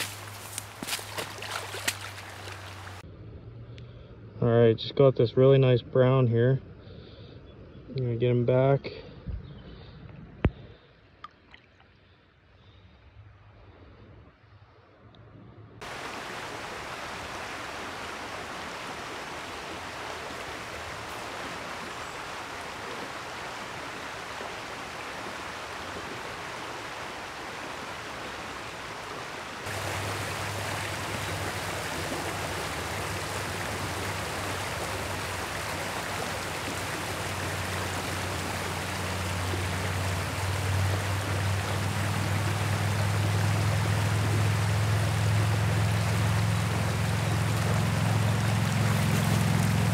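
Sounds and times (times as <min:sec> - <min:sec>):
stream rushing over riffle: 0:00.0 - 0:03.0, 0:15.8 - 0:49.9.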